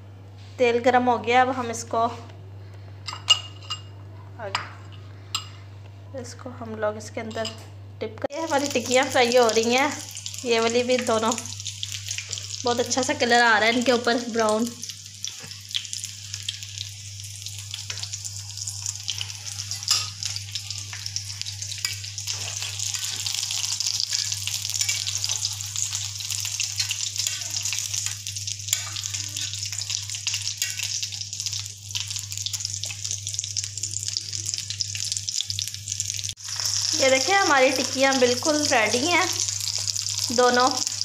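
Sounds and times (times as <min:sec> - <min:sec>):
food sizzling in hot oil: 0:08.3 - 0:41.0.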